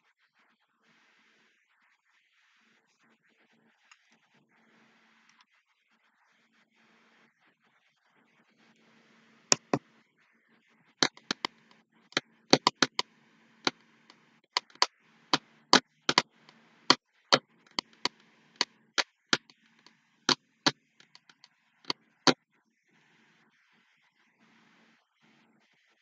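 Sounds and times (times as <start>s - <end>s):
sharp irregular clicks: 9.5s - 9.8s, 11.0s - 11.8s, 12.5s - 18.7s, 19.3s - 20.0s, 20.6s - 21.5s.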